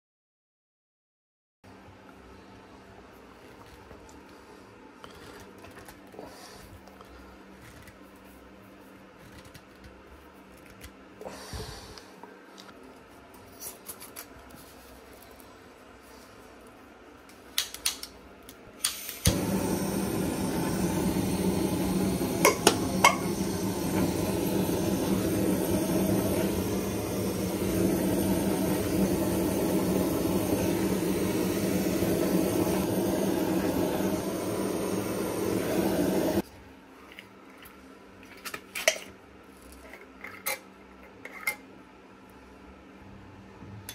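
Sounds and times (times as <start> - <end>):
torch igniter clicks: 17.6 - 36.4
torch flame hissing: 18.9 - 36.4.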